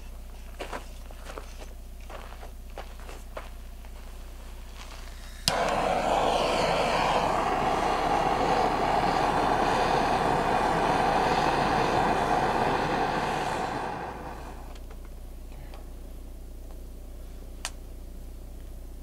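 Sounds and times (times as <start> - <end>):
gas torch flame hissing: 4.5 - 14.9
gas torch ignition click: 5.1 - 15.0.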